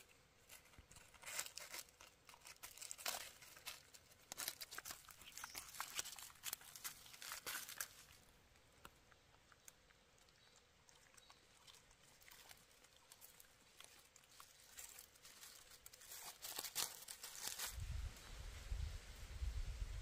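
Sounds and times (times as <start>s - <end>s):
footsteps on dry leaves: 0.4s - 8.2s, 12.3s - 17.9s.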